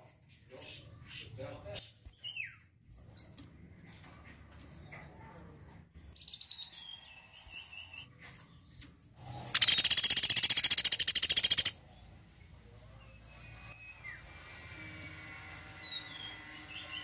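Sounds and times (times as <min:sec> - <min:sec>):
woodpecker rapid trill: 0:09.5 - 0:11.8.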